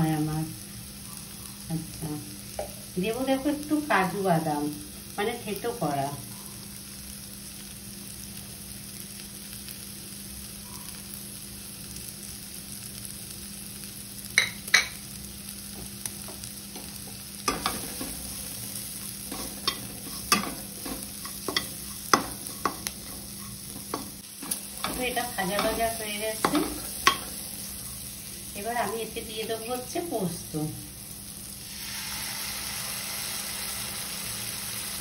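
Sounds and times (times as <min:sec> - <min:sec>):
food sizzling in a pan: 0:00.0 - 0:35.0
spatula scraping a pan: 0:19.2 - 0:27.4.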